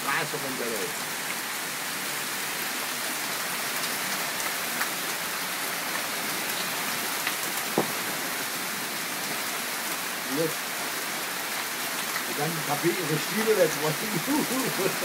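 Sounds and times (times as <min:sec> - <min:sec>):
heavy rain and hail falling: 0:00.0 - 0:15.0
hailstones ticking: 0:03.8 - 0:08.5, 0:10.3 - 0:15.0.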